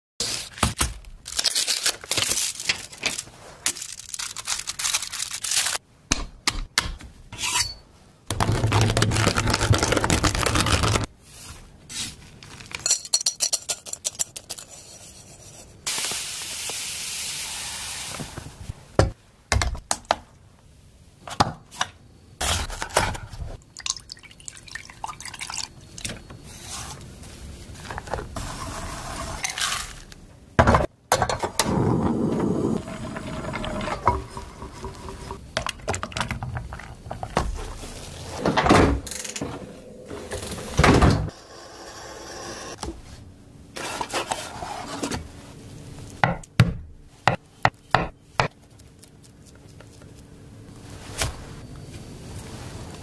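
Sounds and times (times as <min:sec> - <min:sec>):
steady hiss: 0:15.9 - 0:18.8.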